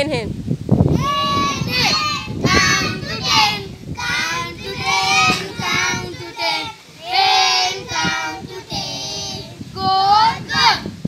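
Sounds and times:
young children singing: 0.9s - 10.9s.

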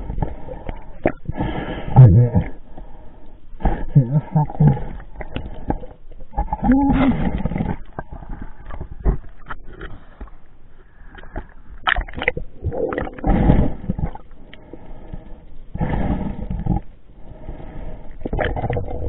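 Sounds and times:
water sloshing and splashing: 4.9s - 14.4s.

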